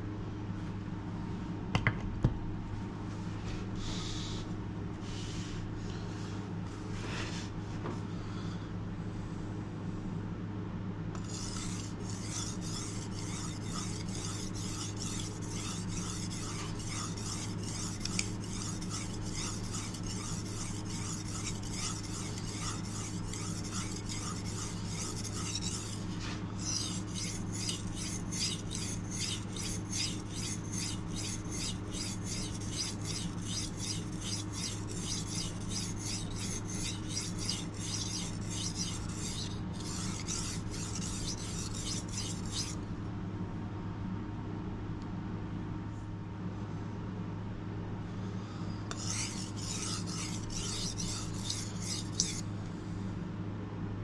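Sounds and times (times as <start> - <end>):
knife scraping on whetstone: 11.2 - 42.8, 48.9 - 52.5.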